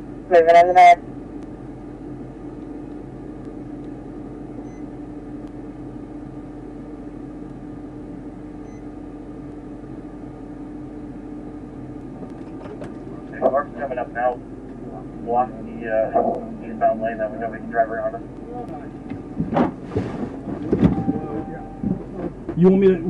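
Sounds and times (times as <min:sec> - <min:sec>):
car idling hum and hiss: 0:00.0 - 0:23.0
low steady tone: 0:20.7 - 0:22.3.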